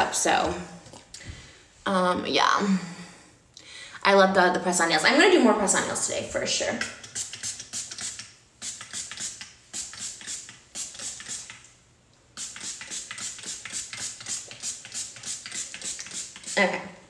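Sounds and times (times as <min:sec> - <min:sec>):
spray can hissing bursts: 0:06.8 - 0:11.7, 0:12.3 - 0:16.8.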